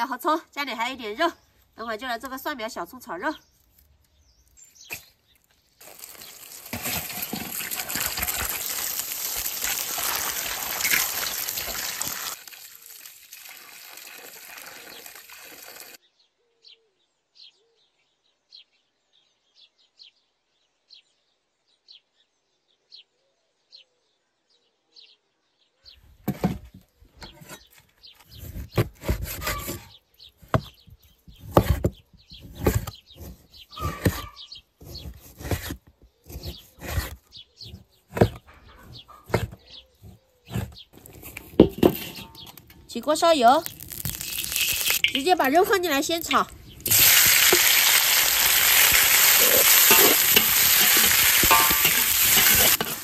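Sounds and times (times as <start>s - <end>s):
cleaver chopping on wooden board: 31.4s - 38.4s.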